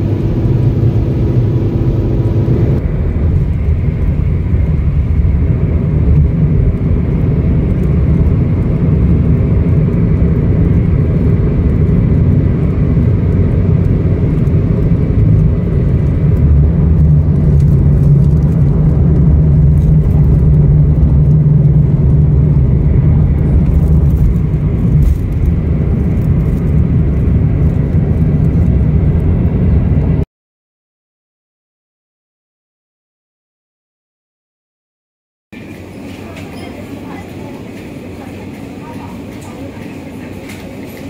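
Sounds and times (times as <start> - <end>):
low engine hum: 0.0 - 30.3
vehicle rumble: 0.0 - 30.3.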